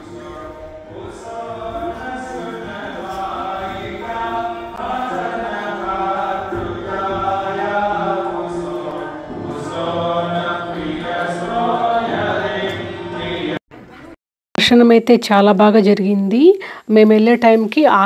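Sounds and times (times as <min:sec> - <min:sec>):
group chanting: 0:00.0 - 0:13.6.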